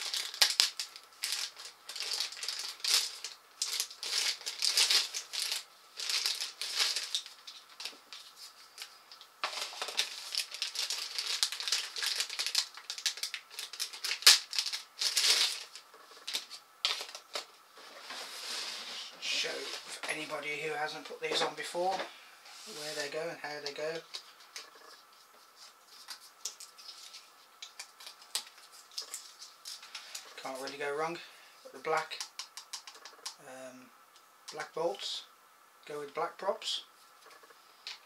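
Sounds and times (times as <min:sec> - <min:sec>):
plastic bag crinkling: 0:00.0 - 0:17.5, 0:25.9 - 0:30.8.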